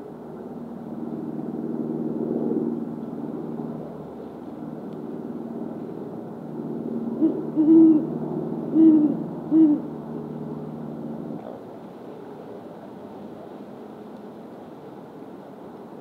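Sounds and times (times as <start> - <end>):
owl hooting: 7.2 - 8.1, 8.7 - 9.9.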